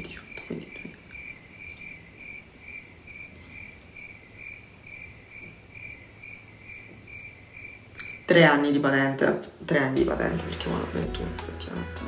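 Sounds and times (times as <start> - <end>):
cricket chirping: 0.0 - 8.3
faint room noise: 0.0 - 12.0.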